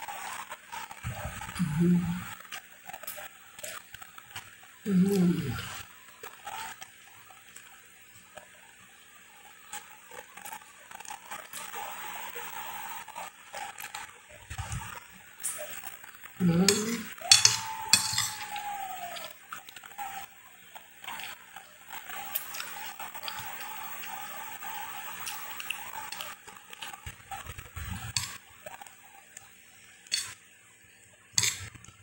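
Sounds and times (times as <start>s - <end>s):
metal spoon scraping glass plate: 16.7s - 18.6s, 31.4s - 31.7s
chewing: 21.0s - 28.9s.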